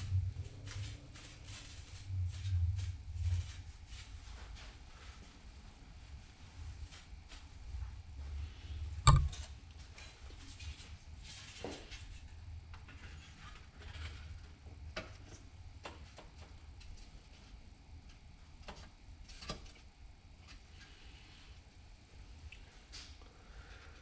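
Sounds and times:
sharp knock: 0:09.1 - 0:09.4.

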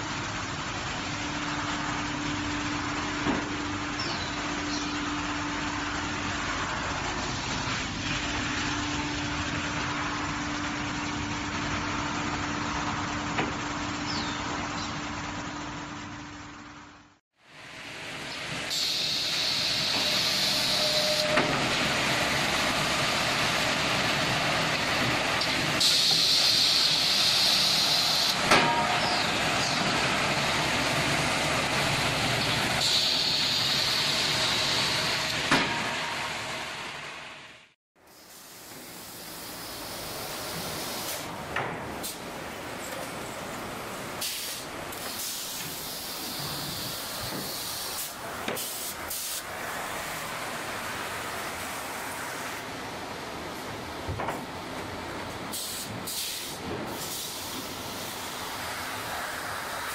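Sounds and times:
sharp hiss: 0:18.7 - 0:21.3, 0:38.0 - 0:41.4, 0:44.1 - 0:49.6, 0:55.5 - 0:59.9.

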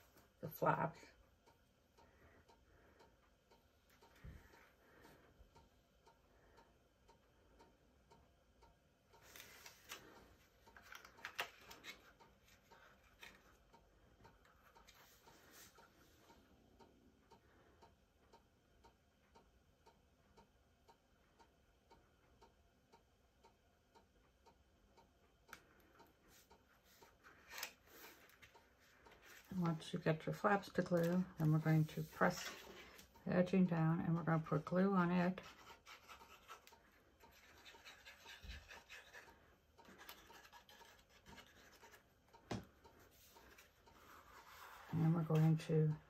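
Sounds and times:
faint ticking: 0:10.0 - 0:34.8.

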